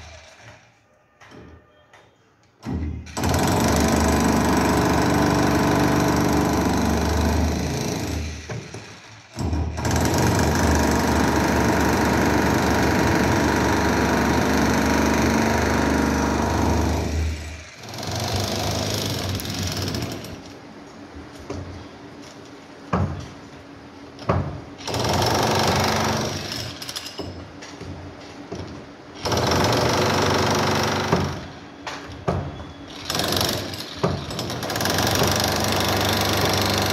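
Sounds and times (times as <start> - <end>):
demolition hammer breaking concrete: 9.4 - 17.2, 33.0 - 36.9.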